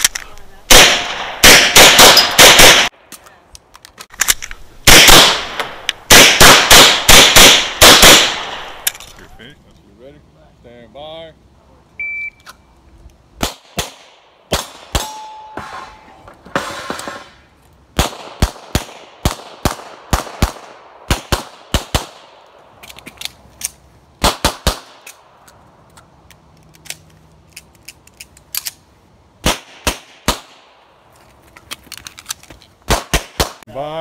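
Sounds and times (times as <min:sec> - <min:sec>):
short electronic beep: 0:12.0 - 0:12.4.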